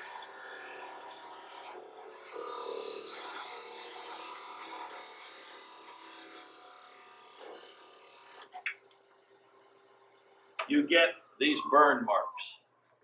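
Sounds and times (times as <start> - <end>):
lathe hum: 0.0 - 8.5.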